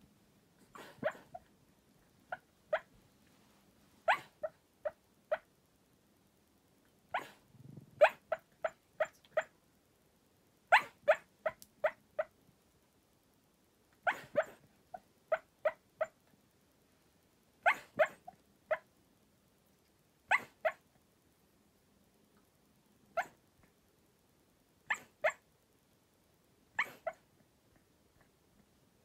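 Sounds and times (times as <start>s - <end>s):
dog barking: 0.7s - 1.4s, 4.0s - 5.4s, 10.7s - 12.3s, 14.0s - 14.6s, 17.6s - 18.8s, 20.3s - 20.8s, 23.2s - 23.4s.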